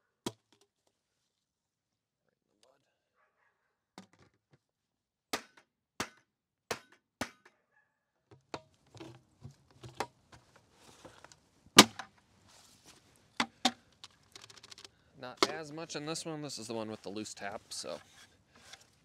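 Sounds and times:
plastic lid clicks and rattles: 0:13.4 - 0:15.6.

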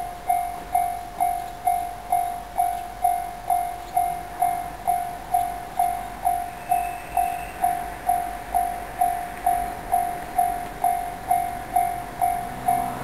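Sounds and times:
level crossing bell clanging: 0:00.0 - 0:13.0.

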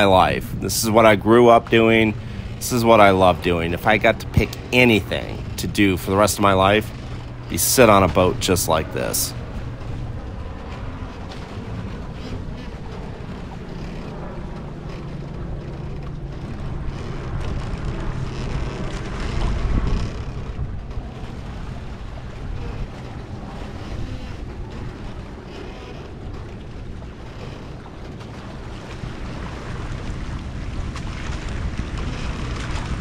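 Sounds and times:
water rushing past a boat hull: 0:00.0 - 0:33.0
wind buffeting microphone: 0:00.0 - 0:33.0.

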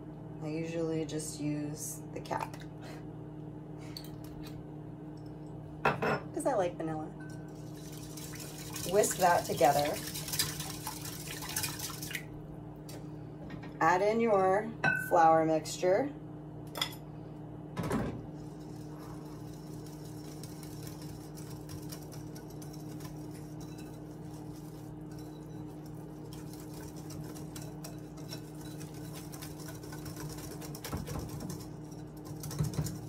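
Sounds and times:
steady low hum: 0:00.0 - 0:33.0
whisk beating batter in bowl: 0:07.3 - 0:12.2, 0:18.3 - 0:33.0.

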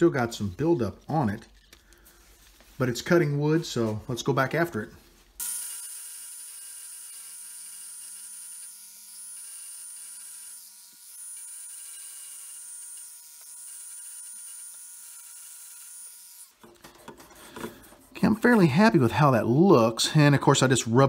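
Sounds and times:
rotary tool grinding whine: 0:05.4 - 0:16.6.

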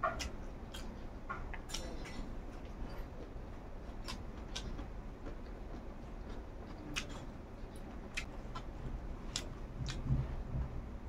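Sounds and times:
low steady hum: 0:00.0 - 0:11.0
soft clicks of eating by hand: 0:00.2 - 0:08.7, 0:09.3 - 0:10.1.

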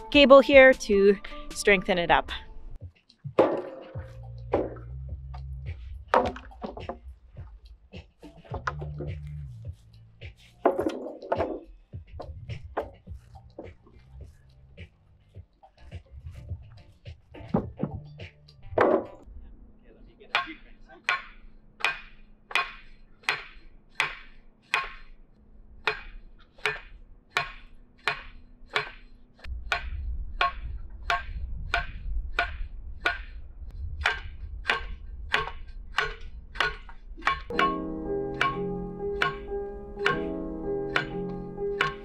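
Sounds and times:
low rumble: 0:04.0 - 0:06.2, 0:18.6 - 0:19.9, 0:29.5 - 0:36.5.

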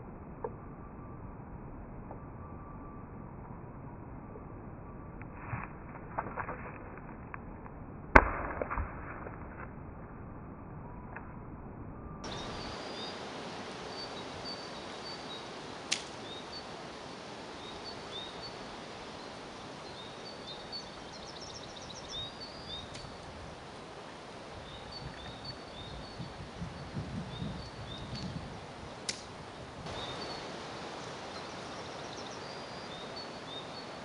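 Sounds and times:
outdoor background noise: 0:00.0 - 0:34.0
small bird chirping: 0:17.6 - 0:23.2, 0:29.9 - 0:34.0.

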